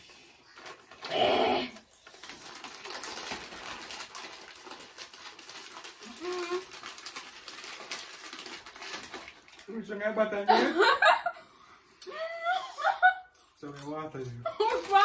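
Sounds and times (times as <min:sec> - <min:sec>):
chip bags rustling: 0:00.4 - 0:11.1, 0:13.6 - 0:15.0
loud vocal outburst: 0:01.1 - 0:01.8.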